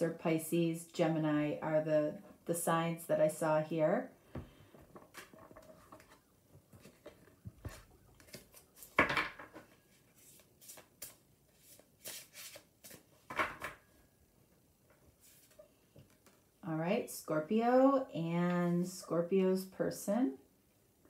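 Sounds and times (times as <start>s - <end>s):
cards being shuffled: 5.0s - 13.1s, 15.2s - 16.4s.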